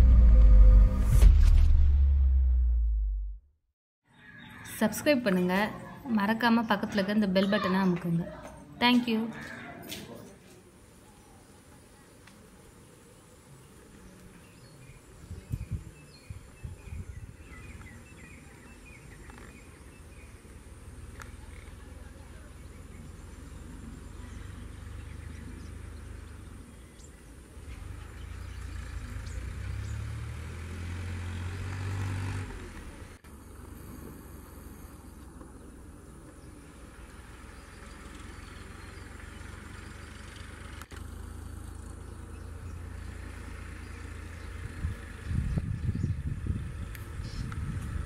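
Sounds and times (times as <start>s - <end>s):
tractor diesel engine under load: 16.7s - 48.0s.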